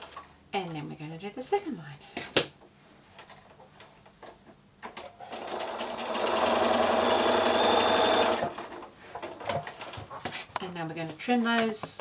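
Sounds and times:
sewing machine stitching: 5.2 - 8.6.

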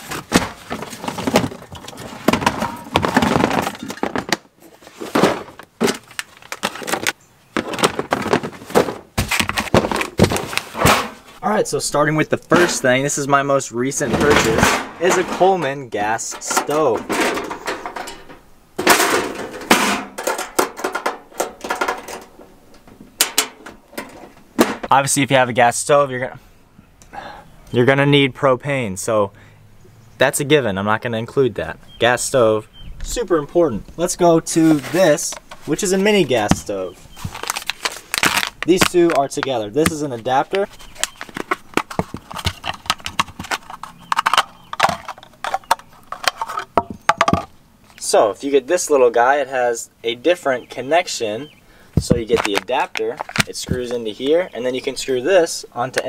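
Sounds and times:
metal clanking and rattling: 14.0 - 24.9
plastic case clicks and clacks: 41.0 - 47.5, 52.0 - 53.6.

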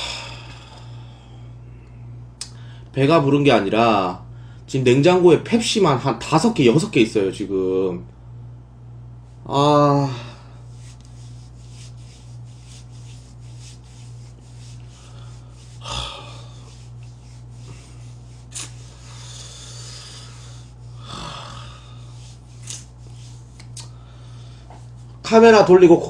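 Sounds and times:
man breathing through hands: 0.0 - 2.9, 14.9 - 16.8, 17.6 - 22.4, 23.8 - 24.9
low electrical hum: 0.0 - 26.0
hands rubbing face: 10.6 - 21.0, 22.0 - 24.0, 24.6 - 25.2.

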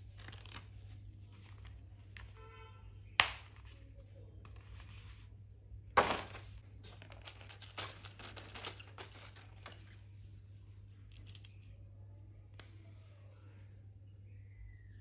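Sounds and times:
plastic packaging crinkling: 0.0 - 2.2, 6.0 - 10.0.

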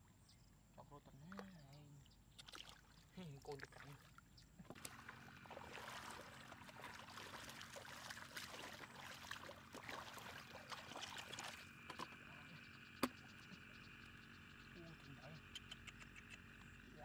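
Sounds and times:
hands swishing through muddy water: 4.8 - 11.7.

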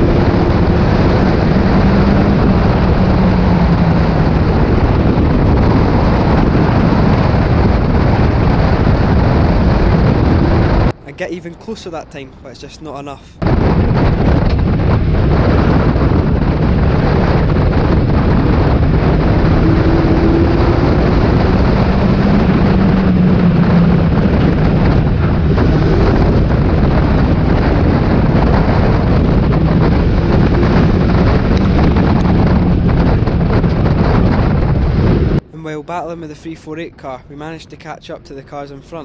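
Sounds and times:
race car engine running hard: 0.0 - 10.9
road and wind noise: 0.0 - 39.0.

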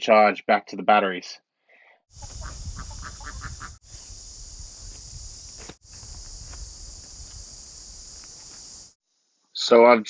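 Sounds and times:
low wind rumble: 2.1 - 8.4
ducks quacking: 2.2 - 3.8
high insect drone: 2.2 - 9.3
footsteps on gravel: 4.7 - 8.9.

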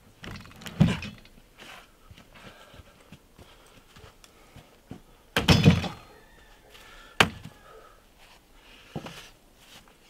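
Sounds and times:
heavy wooden log thumps: 0.2 - 1.3, 4.9 - 6.0, 7.2 - 7.6.

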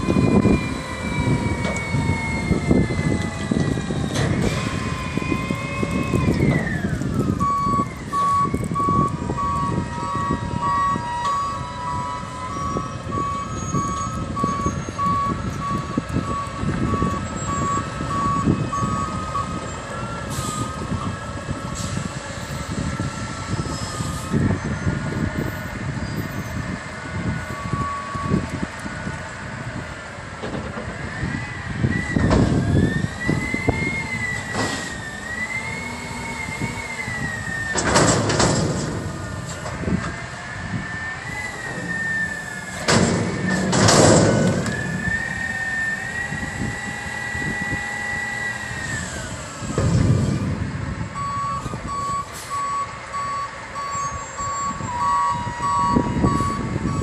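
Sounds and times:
reverse alarm beeping: 7.3 - 19.6, 51.2 - 57.0.

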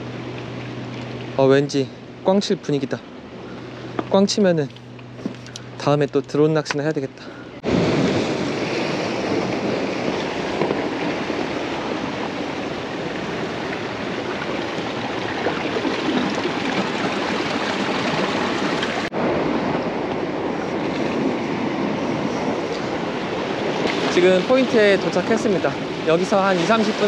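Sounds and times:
sea waves on rocky shore: 7.6 - 27.0.

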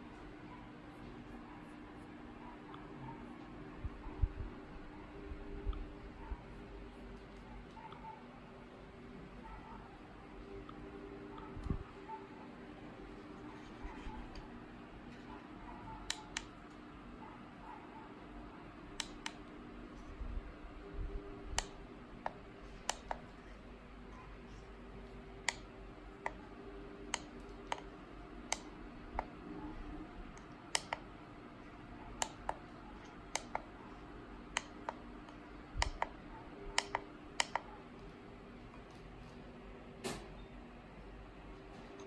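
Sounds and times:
steady low hum: 0.0 - 42.0
push buttons clicking: 30.3 - 31.1, 32.1 - 33.7, 34.5 - 37.7.

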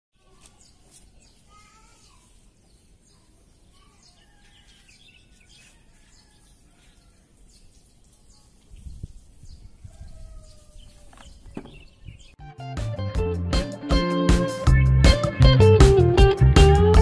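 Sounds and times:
faint outdoor background noise: 0.2 - 12.4
small birds chirping: 0.2 - 12.4.

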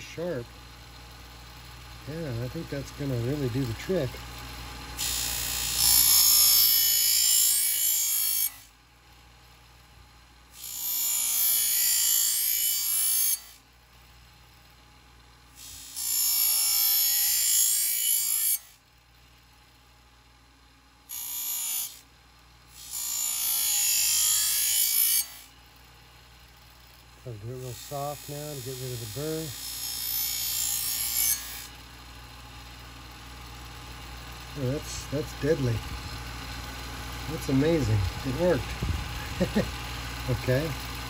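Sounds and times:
faint motor hum: 0.0 - 41.0
knife grinding on wheel: 4.9 - 8.7, 10.6 - 13.6, 15.6 - 18.8, 22.7 - 25.5, 27.5 - 31.8, 34.5 - 41.0.

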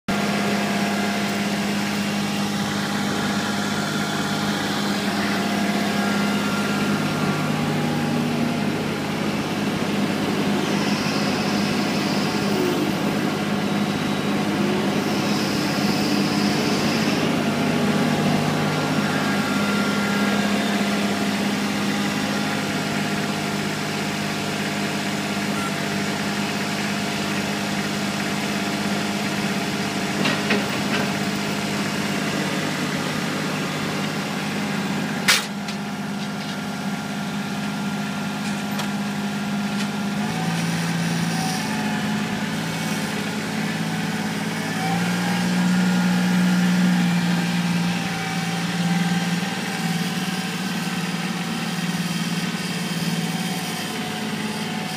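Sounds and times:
tractor diesel engine running: 0.0 - 54.9
brief high whines: 0.1 - 35.5.

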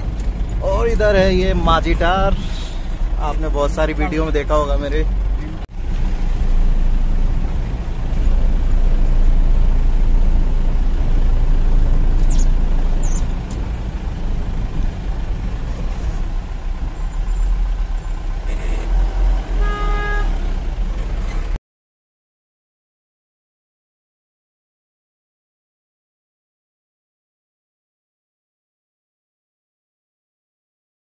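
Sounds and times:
vehicle horn: 19.5 - 20.4.

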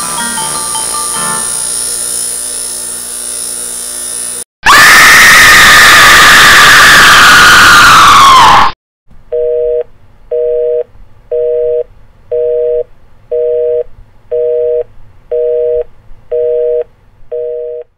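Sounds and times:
loud shriek falling in pitch: 4.6 - 8.8.

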